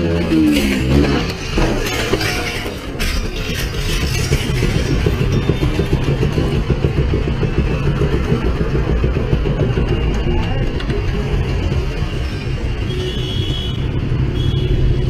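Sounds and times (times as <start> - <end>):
motorcycle engine idling: 4.9 - 12.1.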